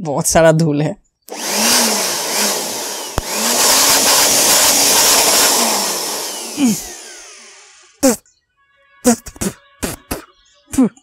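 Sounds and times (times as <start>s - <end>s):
electric air blower rushing: 1.3s - 8.2s.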